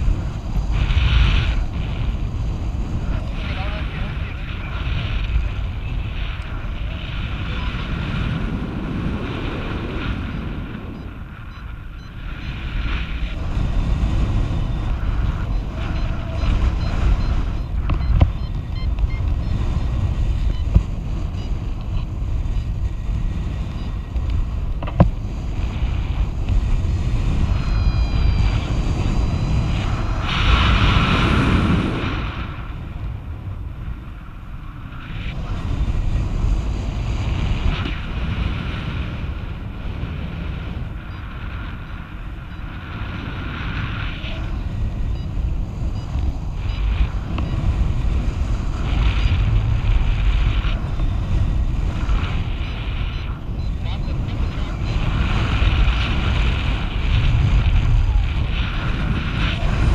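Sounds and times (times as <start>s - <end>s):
wind rushing over microphone: 0.0s - 59.9s
high electronic beeps: 14.7s - 22.7s, 27.4s - 30.2s.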